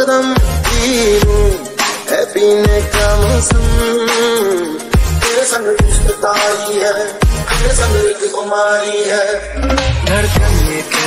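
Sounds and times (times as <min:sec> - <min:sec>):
melody over a beat: 0:00.0 - 0:08.4, 0:09.0 - 0:11.0
deep bass: 0:00.4 - 0:01.6, 0:02.7 - 0:03.9, 0:05.8 - 0:06.2, 0:07.2 - 0:08.0, 0:09.4 - 0:10.7.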